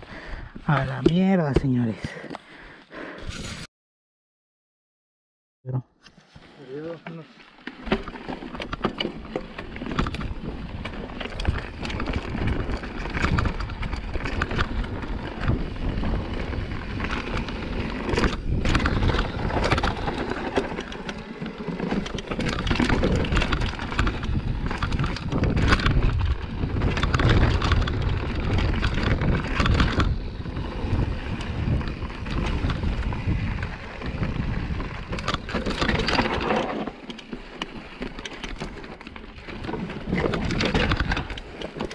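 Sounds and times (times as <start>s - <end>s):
bike rattling and knocking: 7.6s - 41.9s
wind rumble on microphone: 9.8s - 20.6s, 22.4s - 36.4s.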